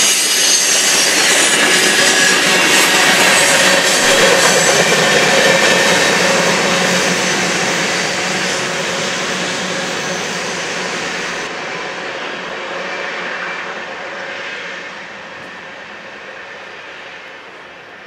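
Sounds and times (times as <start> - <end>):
train wheels rolling on rails: 0.0 - 13.0.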